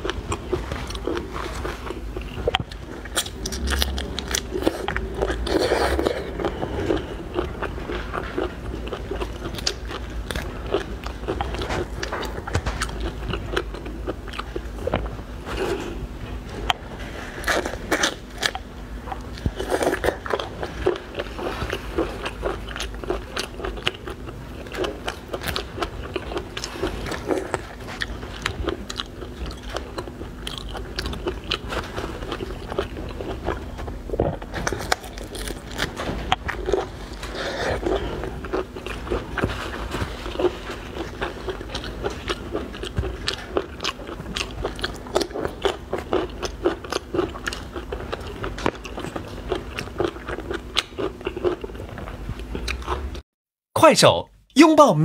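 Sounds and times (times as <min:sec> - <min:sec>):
crunching and chewing prawn shell: 0:00.0 - 0:53.2.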